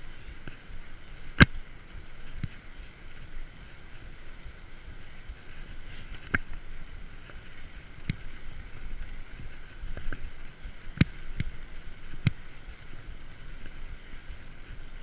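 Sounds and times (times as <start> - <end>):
bike knocking and rattling: 0.0 - 15.0
bike tyres rolling on paving: 0.0 - 15.0.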